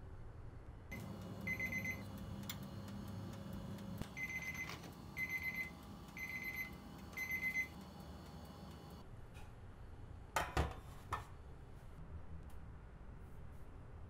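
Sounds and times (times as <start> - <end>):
low steady hum: 0.1 - 9.5
oven timer beeping: 0.9 - 9.0.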